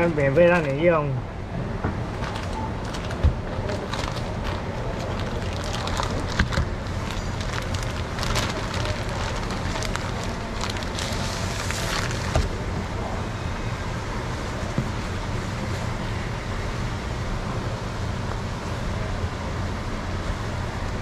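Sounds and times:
steady background noise: 0.0 - 21.0
plastic bag crinkling: 2.1 - 12.6.

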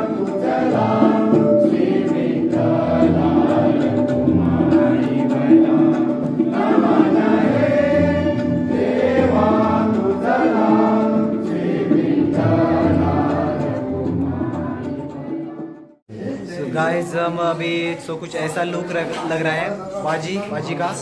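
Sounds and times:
group singing in chorus: 0.0 - 16.0.

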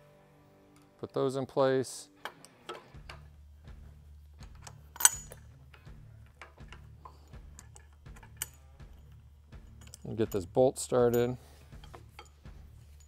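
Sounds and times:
small metal parts clinking: 4.4 - 5.5, 6.2 - 13.0.

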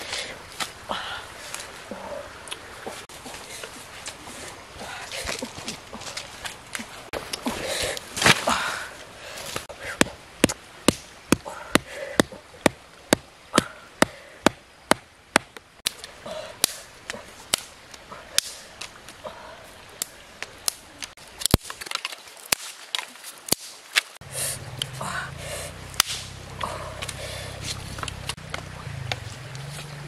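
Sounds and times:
blade chopping wood: 26.0 - 26.4.

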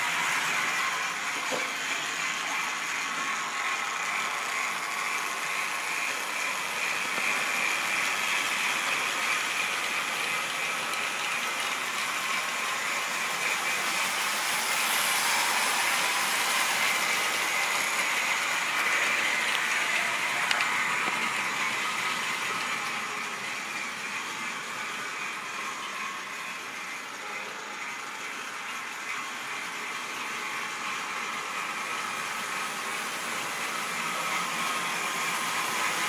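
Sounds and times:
model train running on track: 0.0 - 36.0.

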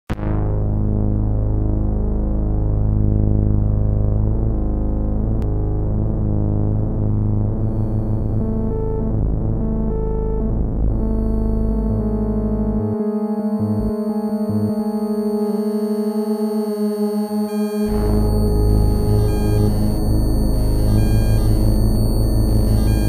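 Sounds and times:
synthesizer drone chords: 0.1 - 23.0.

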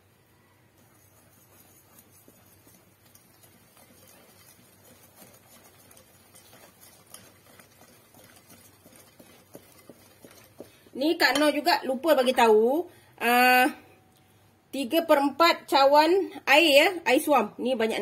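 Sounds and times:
whisk stirring batter in glass bowl: 0.5 - 12.8.

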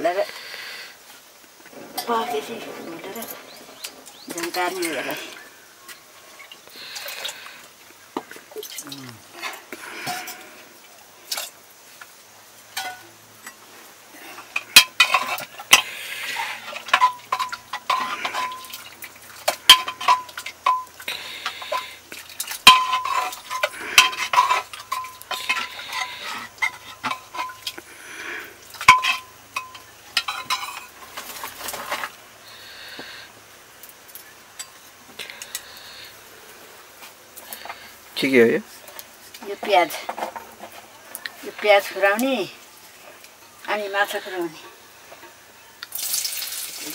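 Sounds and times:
clinks against metal pot: 12.8 - 13.6, 14.6 - 27.9, 28.7 - 31.7
utensil scraping a metal pot: 14.3 - 32.2.

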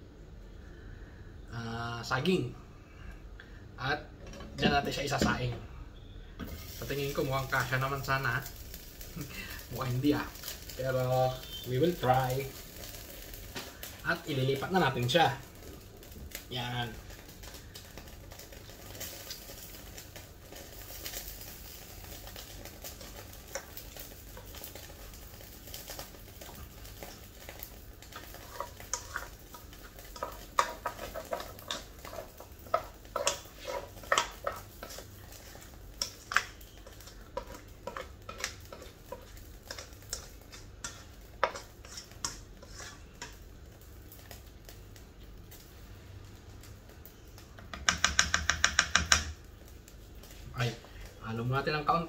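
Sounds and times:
metal spoon scraping a pot: 28.2 - 43.4.

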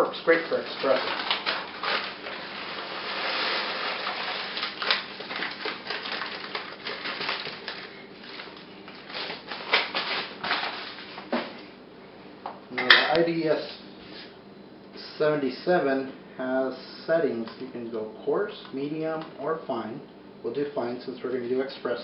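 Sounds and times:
coffee beans rattling on plastic: 0.2 - 11.0.

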